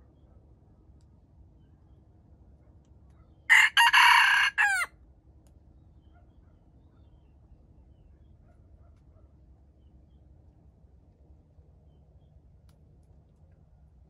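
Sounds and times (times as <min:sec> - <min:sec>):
rooster crowing: 0:03.5 - 0:04.9.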